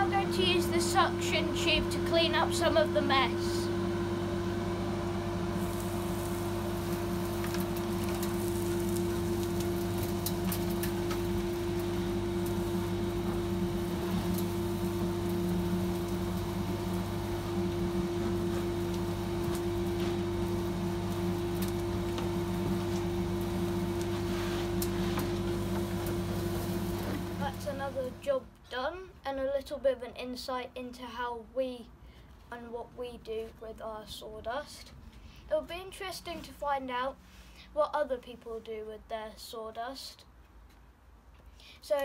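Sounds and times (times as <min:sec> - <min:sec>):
sawdust extractor humming: 0:00.0 - 0:28.3.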